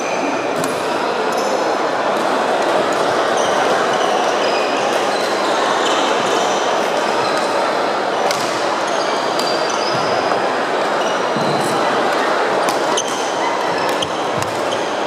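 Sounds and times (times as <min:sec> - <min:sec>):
crowded hall din: 0:00.0 - 0:15.0
racket hitting shuttlecock: 0:12.6 - 0:14.8
sneakers squeaking on wooden court: 0:12.6 - 0:15.0.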